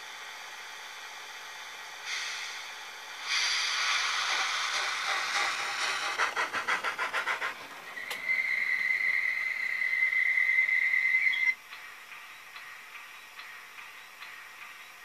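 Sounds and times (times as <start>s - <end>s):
steam locomotive chuffs: 0.0s - 15.0s
steam hiss: 2.0s - 10.0s.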